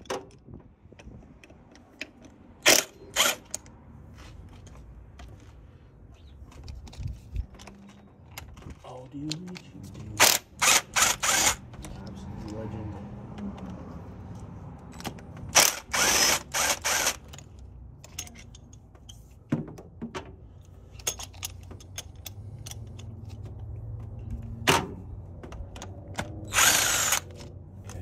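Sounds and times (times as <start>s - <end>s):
hand tool ratchet clicks: 0.0s - 3.8s, 6.6s - 12.7s, 13.3s - 19.2s, 20.6s - 24.5s, 25.5s - 28.0s
cordless drill bursts: 10.2s - 11.6s, 15.6s - 17.3s, 26.5s - 27.3s.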